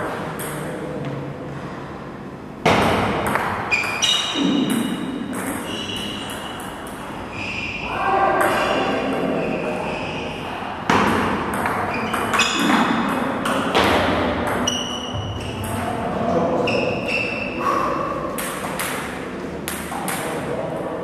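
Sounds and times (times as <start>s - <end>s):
table tennis ball hits: 2.6s - 7.2s, 8.3s - 9.4s, 10.9s - 16.0s, 18.3s - 20.6s.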